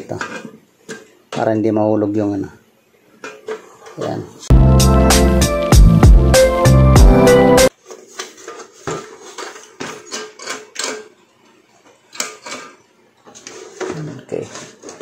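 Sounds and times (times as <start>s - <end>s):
rice cooker parts clattering: 0.0s - 1.2s, 7.8s - 11.2s, 12.1s - 15.0s
music: 4.5s - 7.7s.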